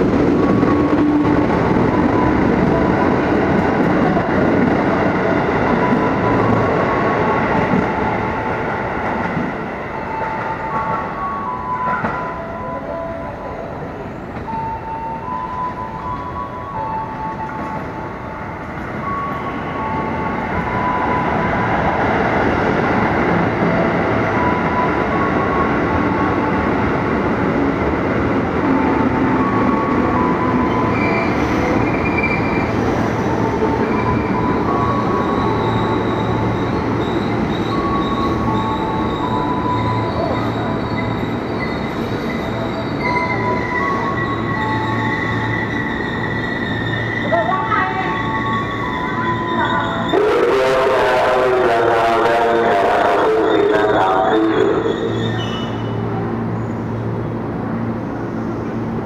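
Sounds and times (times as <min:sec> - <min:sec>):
train wheels rumbling on rail: 0:00.0 - 0:59.0
high squealing tones: 0:34.9 - 0:50.2.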